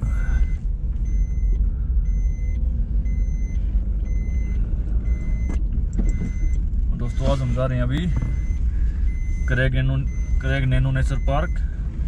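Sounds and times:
electronic warning beeps: 0.0s - 11.8s
car engine and road rumble: 0.0s - 12.0s.

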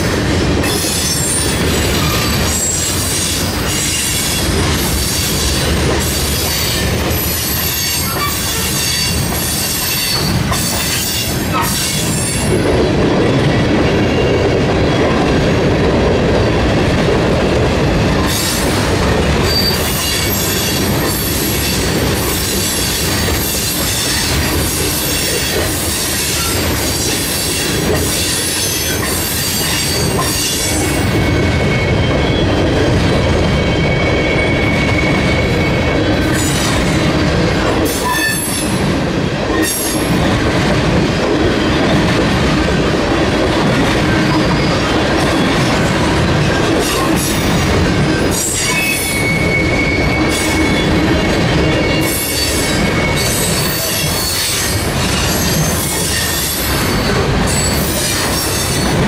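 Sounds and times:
train wheels rumbling on rail: 0.0s - 59.0s
high wheel squeals: 6.4s - 12.1s, 19.5s - 21.4s, 28.7s - 36.6s, 48.3s - 58.9s.

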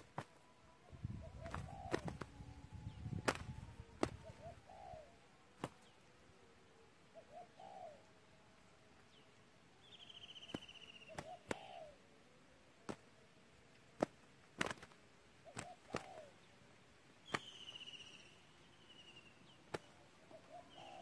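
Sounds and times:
birds scuffling: 0.0s - 0.4s, 1.1s - 4.8s, 10.4s - 11.9s, 12.8s - 17.9s
wing slaps: 0.0s - 0.4s, 1.4s - 2.3s, 3.2s - 4.4s, 5.6s - 5.9s, 10.5s - 11.8s, 12.8s - 13.1s, 14.0s - 16.3s, 17.2s - 17.8s, 19.6s - 20.0s
dove cooing: 0.0s - 5.3s, 7.1s - 8.2s, 10.5s - 12.1s, 15.4s - 16.5s, 19.8s - 21.0s.

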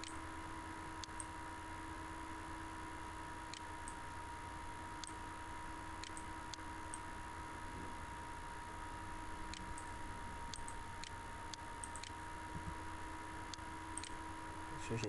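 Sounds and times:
low hum and hiss: 0.0s - 15.0s
computer mouse clicks: 1.0s - 1.3s, 6.0s - 7.0s, 10.5s - 12.2s, 13.5s - 14.2s.

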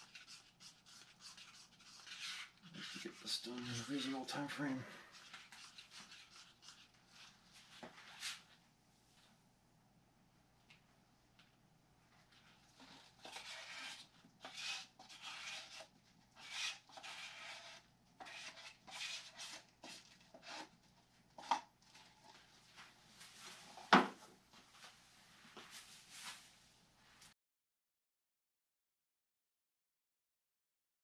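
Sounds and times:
cloth rubbing strokes: 24.7s - 27.3s.

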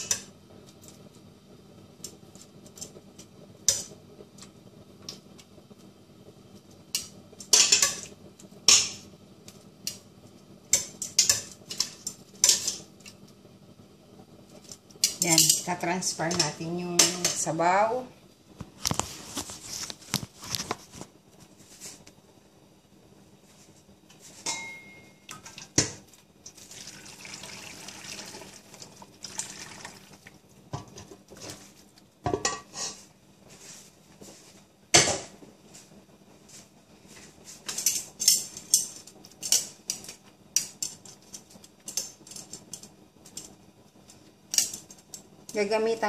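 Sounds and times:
metal pots and utensils clinking: 0.0s - 0.3s, 7.0s - 9.1s, 10.7s - 13.1s, 14.6s - 17.6s, 24.4s - 26.0s, 32.2s - 33.1s
liquid pouring: 26.5s - 30.4s.

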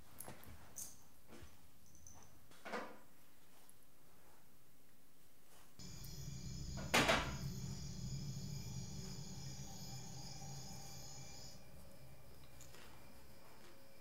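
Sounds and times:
loud crash: 5.8s - 11.8s
low drone: 5.8s - 14.0s
thin high tones: 5.8s - 14.0s.

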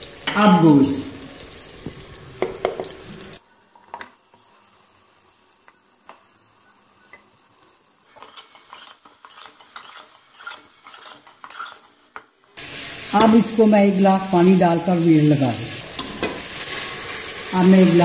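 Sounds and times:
meat sizzling in oil: 0.0s - 18.0s
metal spatula scraping pot: 8.1s - 12.0s.

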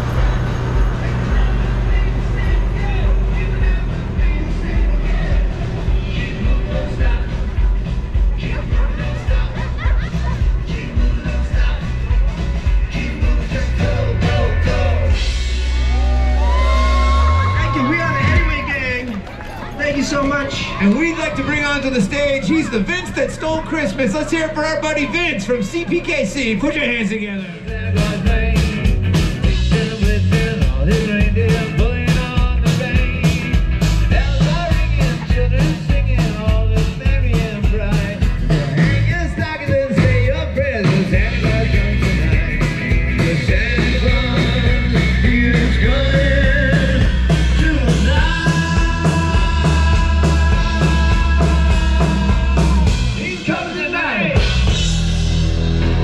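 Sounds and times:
drum beat: 0.0s - 16.9s, 27.7s - 55.4s
live rock band playing: 0.0s - 18.8s, 27.6s - 56.0s
electric guitars: 27.6s - 56.0s.

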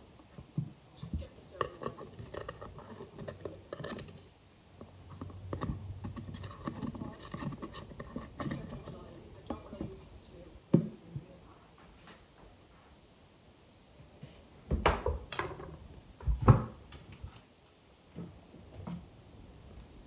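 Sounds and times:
knife scraping pressed powder: 1.5s - 4.3s, 5.1s - 9.2s.

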